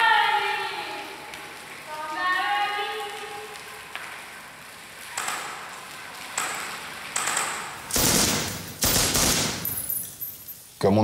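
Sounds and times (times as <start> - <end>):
automatic gunfire bursts: 7.9 - 9.8
single gunshots: 7.9 - 9.8.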